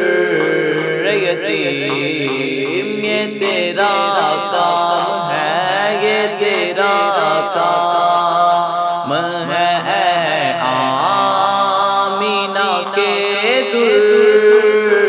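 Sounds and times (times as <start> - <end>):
melismatic chanted melody: 0.0 - 7.8
low vocal drone: 0.0 - 15.0.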